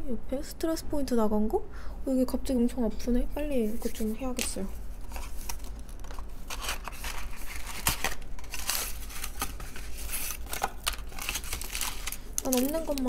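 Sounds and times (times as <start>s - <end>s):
packaging crinkling and rustling: 3.8s - 13.0s.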